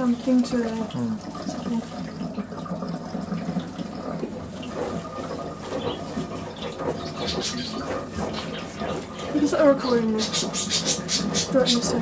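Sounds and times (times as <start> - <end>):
water splashing into a tub: 0.0 - 12.0.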